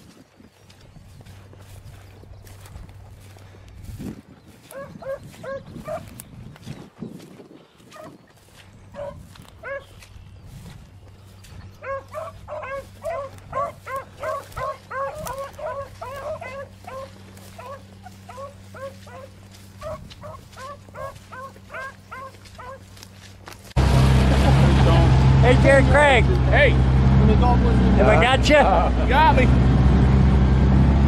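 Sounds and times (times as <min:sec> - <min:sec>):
hounds baying: 0:04.6 - 0:06.2, 0:07.8 - 0:10.2, 0:11.4 - 0:23.3.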